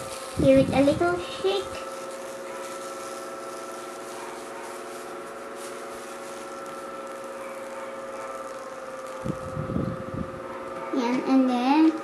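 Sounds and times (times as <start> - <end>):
plastic beads rattling in tray: 0.0 - 9.5
steady hum: 0.0 - 12.0.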